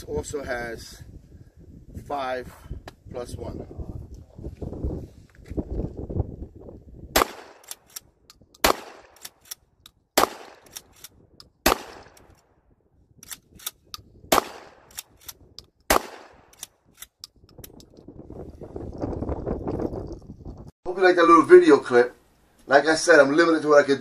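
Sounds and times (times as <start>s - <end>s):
shotgun shots: 7.2s - 7.9s, 8.6s - 9.5s, 10.2s - 11.0s, 11.6s - 12.4s, 14.3s - 15.3s, 15.9s - 16.6s.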